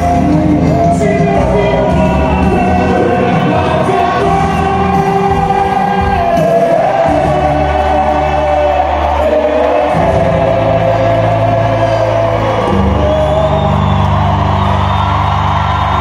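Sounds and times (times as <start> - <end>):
live band music: 0.0 - 15.1
group singing: 1.0 - 14.1.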